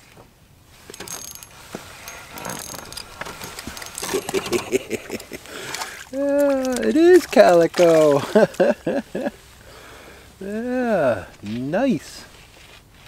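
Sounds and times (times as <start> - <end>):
fishing reel whirring and clicking: 0.9 - 4.6
fish splashing at surface: 5.5 - 8.4.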